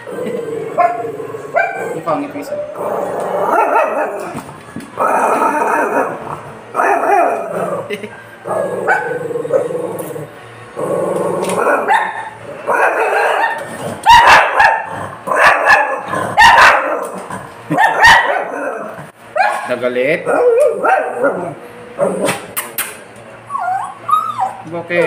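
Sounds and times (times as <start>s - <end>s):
dog barking: 0.8s - 1.8s, 3.5s - 4.2s, 11.6s - 17.1s, 17.7s - 19.7s, 20.3s - 21.4s
dog yipping: 11.6s - 14.8s, 15.4s - 17.1s, 17.7s - 18.8s, 19.4s - 19.7s, 23.5s - 24.6s.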